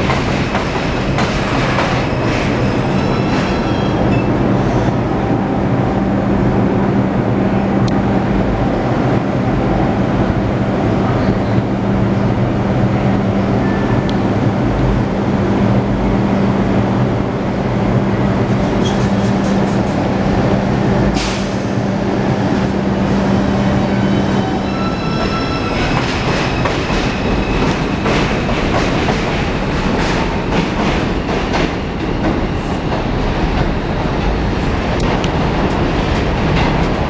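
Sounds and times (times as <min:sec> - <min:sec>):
train wheels rumbling on rails: 0:00.0 - 0:37.0.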